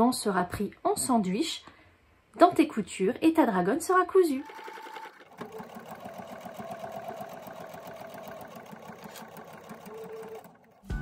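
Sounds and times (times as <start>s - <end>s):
sewing machine stitching: 4.2s - 11.0s.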